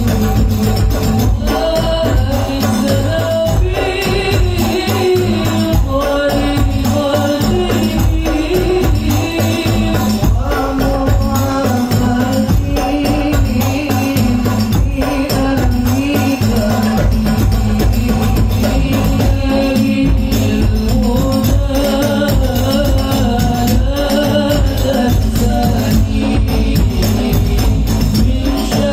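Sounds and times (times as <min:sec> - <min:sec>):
hand drum and tambourine: 0:00.0 - 0:28.9
men singing through a pa: 0:00.0 - 0:28.9
heavy bass: 0:16.6 - 0:28.9.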